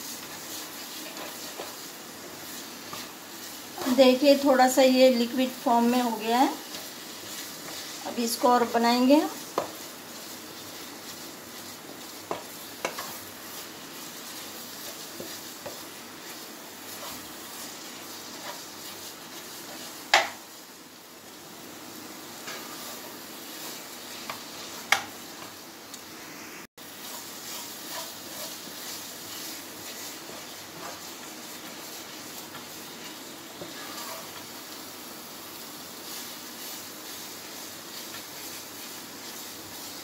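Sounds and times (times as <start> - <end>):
low sizzle: 0.0 - 40.0
spatula scraping thick mixture: 9.3 - 19.9, 27.0 - 34.5
spatula knocking against pan: 20.1 - 20.4.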